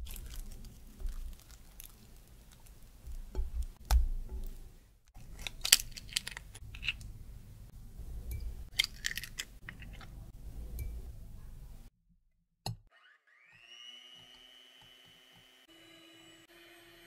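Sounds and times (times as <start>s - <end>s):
eggshells cracking: 0.0s - 7.2s, 8.7s - 10.1s.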